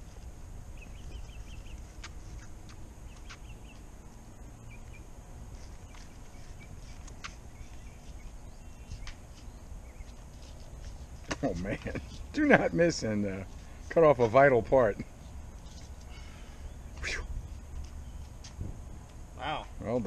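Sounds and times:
wind rumble on microphone: 18.5s - 19.1s.

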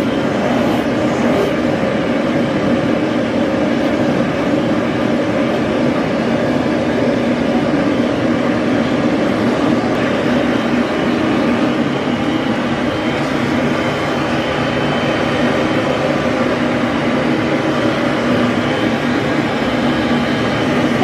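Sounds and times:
dog grooming dryer blowing air: 0.0s - 1.6s.

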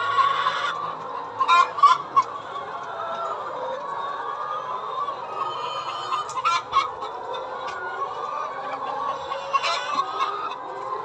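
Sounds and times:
sharp hen calls: 0.0s - 10.6s
hens clucking: 0.0s - 11.0s.

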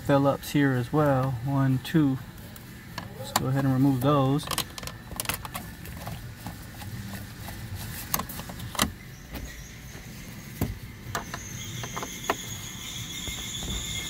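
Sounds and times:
rustling handling noise: 0.8s - 11.3s.

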